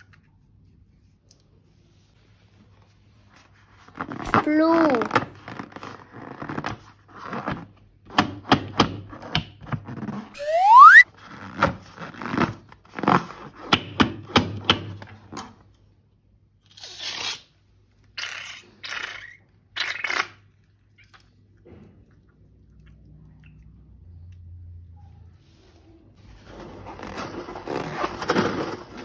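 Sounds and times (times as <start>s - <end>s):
clicks scrapes and crinkles: 3.3s - 7.8s, 26.2s - 29.0s
balloon squeal: 10.4s - 11.0s
slime squelches: 17.9s - 26.2s.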